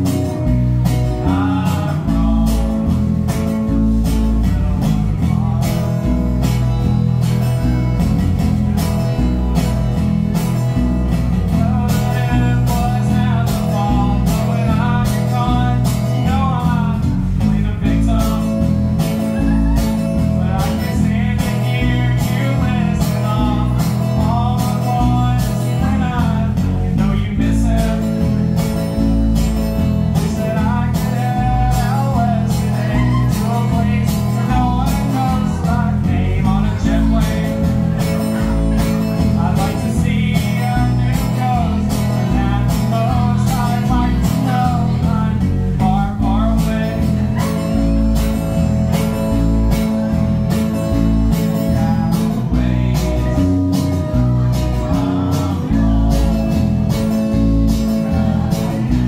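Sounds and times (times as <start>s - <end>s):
acoustic guitar: 0.0s - 59.0s
man singing: 0.0s - 59.0s.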